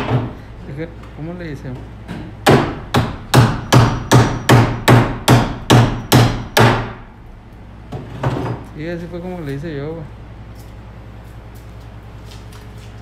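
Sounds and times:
hammer striking plastic tag on wood: 2.4s - 7.0s.

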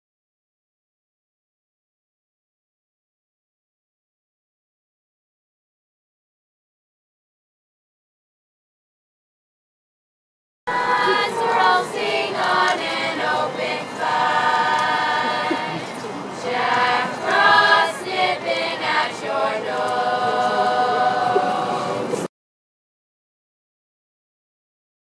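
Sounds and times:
youth choir singing a cappella: 10.7s - 22.3s.

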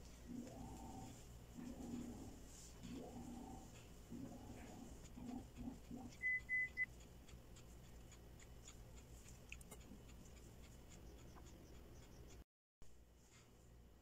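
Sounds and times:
short high beeps: 6.2s - 6.9s.

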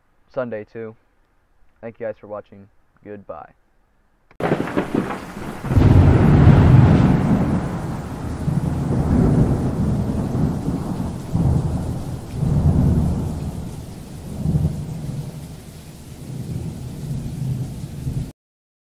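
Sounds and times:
rain falling: 4.4s - 18.3s
rolling thunder: 4.4s - 18.3s.

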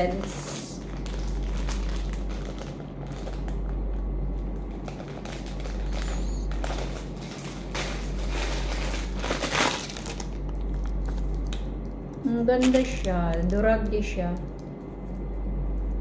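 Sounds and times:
packaging crinkling: 0.0s - 15.2s
low hum: 0.0s - 16.0s.

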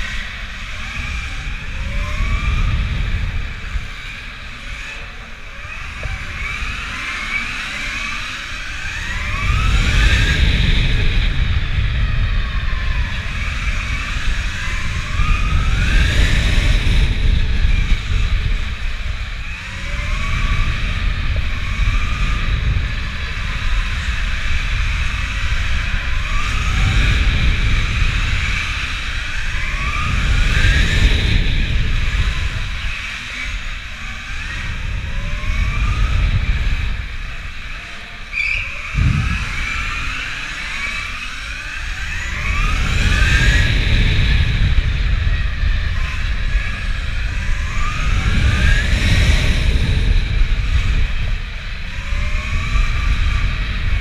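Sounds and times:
electric motorcycle motor whining: 0.0s - 54.0s
heavy low rumble: 38.9s - 54.0s.

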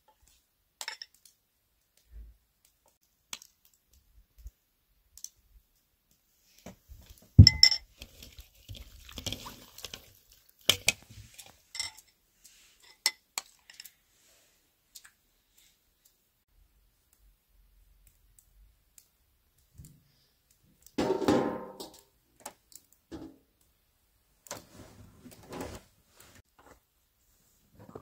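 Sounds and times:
metal spoon clinking against bowls: 11.7s - 12.1s.

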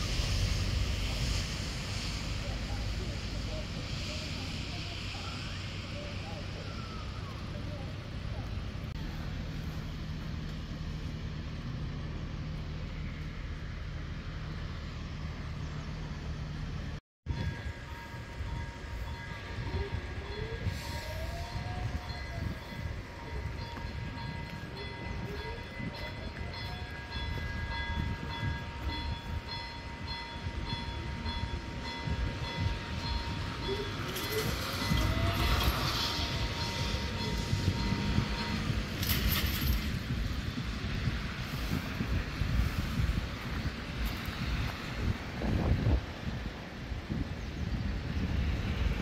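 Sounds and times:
low engine hum: 0.0s - 17.0s
road traffic rumble: 0.0s - 49.0s
rushing noise: 0.0s - 49.0s
crossing warning bells ringing: 17.3s - 45.7s.

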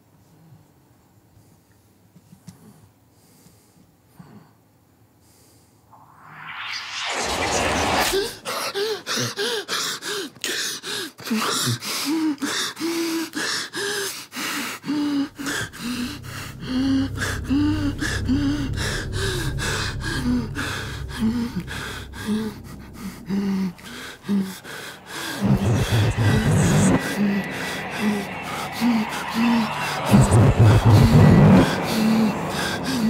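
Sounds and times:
low rumble: 6.0s - 8.4s, 15.0s - 33.0s
man gasping panicked breaths: 9.2s - 15.4s.

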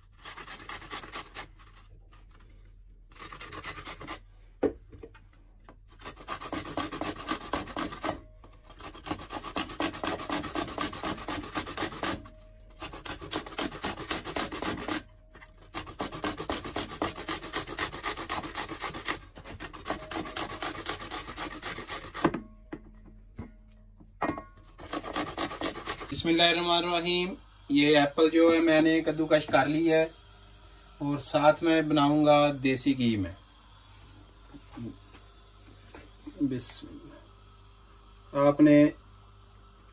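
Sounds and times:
apple grating on metal grater: 0.0s - 4.3s, 5.9s - 22.4s, 24.7s - 33.8s.

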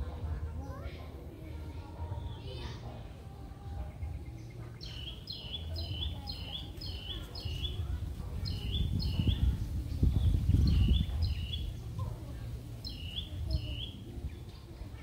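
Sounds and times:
bird chirping: 4.0s - 11.9s, 12.8s - 14.0s.

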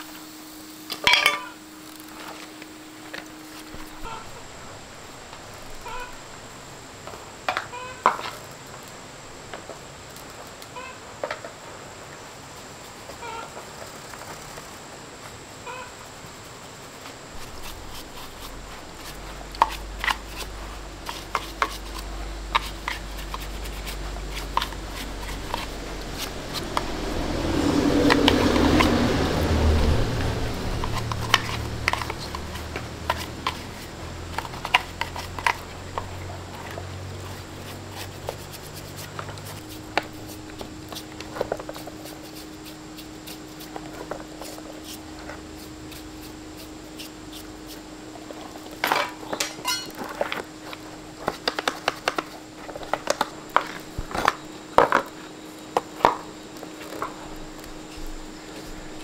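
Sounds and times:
low hum: 0.0s - 7.9s, 12.9s - 51.3s
metal parts and tools clinking: 48.8s - 50.1s.

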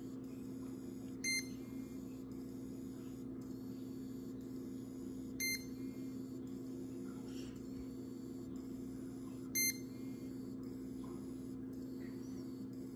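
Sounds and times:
low electrical hum: 0.0s - 12.9s
short electronic beeps: 1.2s - 2.0s, 5.3s - 6.2s, 9.6s - 10.5s.

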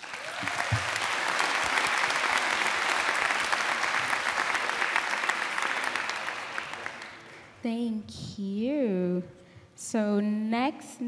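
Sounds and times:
crowd applauding: 0.0s - 7.6s.

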